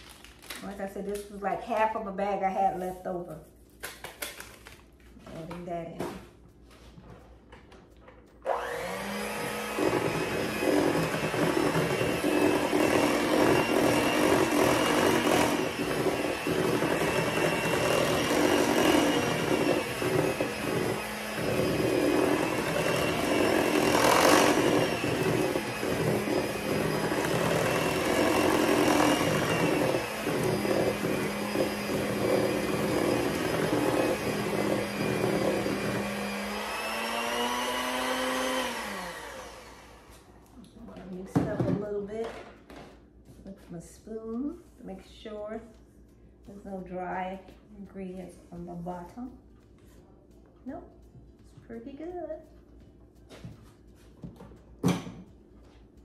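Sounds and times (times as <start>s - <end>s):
electric hand mixer running: 8.4s - 40.3s.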